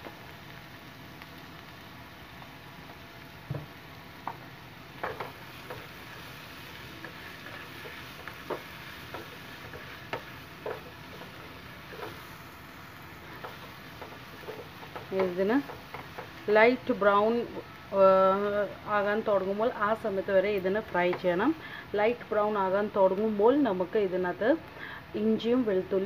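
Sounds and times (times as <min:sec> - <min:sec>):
onions sizzling in oil: 0:00.0 - 0:26.0
spatula scraping a pan: 0:05.0 - 0:12.4, 0:13.2 - 0:15.1.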